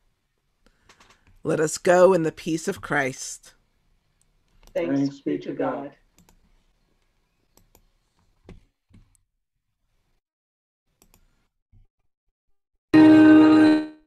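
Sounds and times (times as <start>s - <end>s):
faint clicks: 6.1s - 6.4s, 7.0s - 7.9s.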